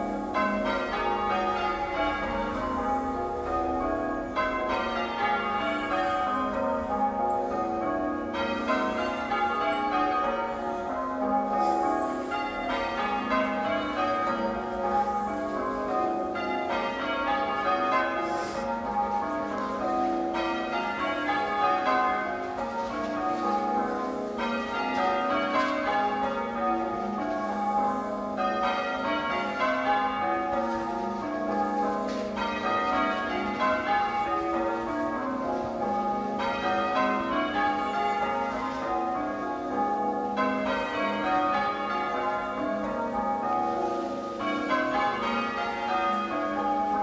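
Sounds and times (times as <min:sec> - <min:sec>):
church bells ringing: 0:00.0 - 0:47.0.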